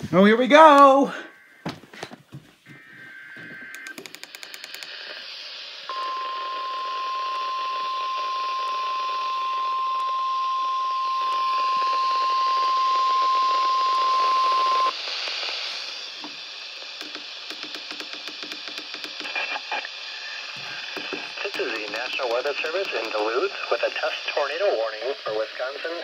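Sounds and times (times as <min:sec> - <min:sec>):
radio hiss: 0:03.9 - 0:26.0
steady radio alert tone: 0:05.9 - 0:14.9, 0:19.2 - 0:26.0.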